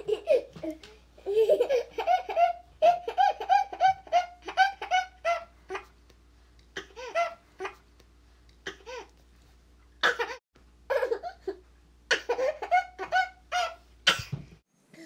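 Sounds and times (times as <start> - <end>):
baby laughing and giggling: 0.0 - 5.9, 6.8 - 7.8, 10.0 - 13.8.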